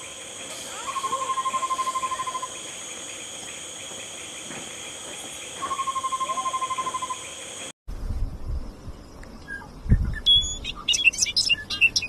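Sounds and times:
high-pitched insect drone: 0:00.0 - 0:07.7
owl trilling call: 0:00.7 - 0:02.6, 0:05.6 - 0:07.3.

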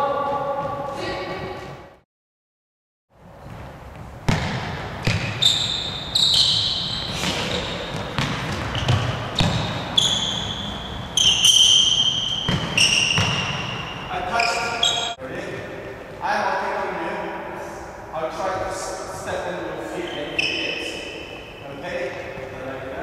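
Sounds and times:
court shoes squeaking: 0:03.2 - 0:15.2, 0:20.0 - 0:22.6.

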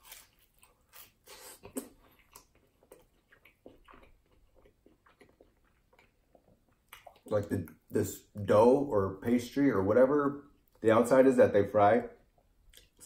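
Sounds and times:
person biting crunchy food: 0:00.0 - 0:02.6
chewing mouth sounds: 0:00.1 - 0:07.9.

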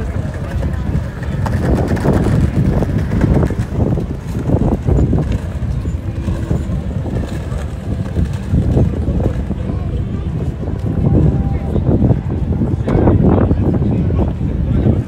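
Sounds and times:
wind buffeting microphone: 0:00.0 - 0:15.0
people talking faintly: 0:04.9 - 0:15.0.

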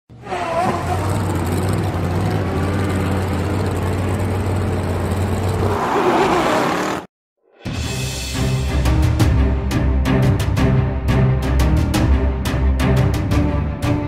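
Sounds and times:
car engine: 0:00.1 - 0:07.1.

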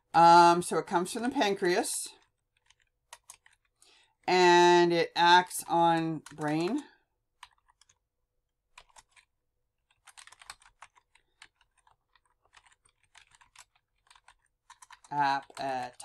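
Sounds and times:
typing on computer keyboard: 0:02.2 - 0:04.0, 0:05.9 - 0:08.0, 0:08.7 - 0:16.0.

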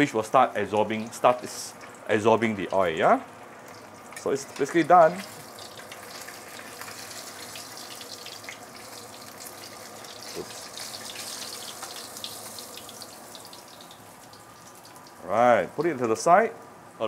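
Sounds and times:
fish sizzling in hot oil: 0:03.4 - 0:15.2.

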